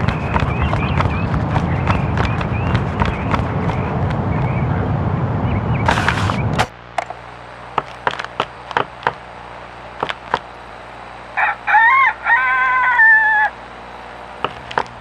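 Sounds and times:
rooster crowing: 11.3s - 13.7s.

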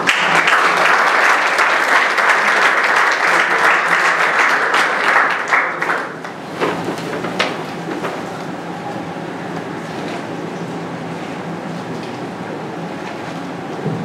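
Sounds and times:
audience applauding: 0.0s - 8.3s.

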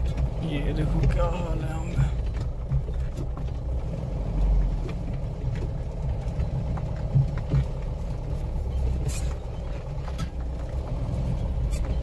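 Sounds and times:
knocks and rattles: 0.0s - 12.0s
vehicle engine and tyre rumble: 0.0s - 12.0s.

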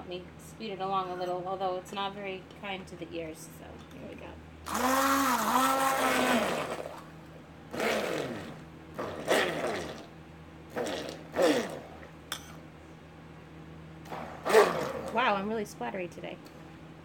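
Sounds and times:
stick blender motor bursts: 4.7s - 7.1s, 7.7s - 10.1s, 10.7s - 11.9s, 14.1s - 15.2s.

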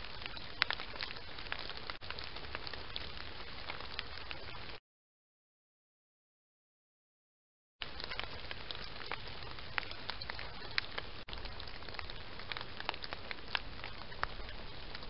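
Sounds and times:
small crackles and clicks: 0.0s - 4.8s, 7.8s - 15.0s.

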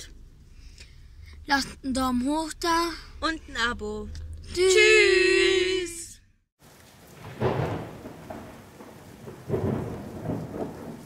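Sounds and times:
steady rain: 6.6s - 11.0s
rolling thunder: 7.0s - 11.0s.

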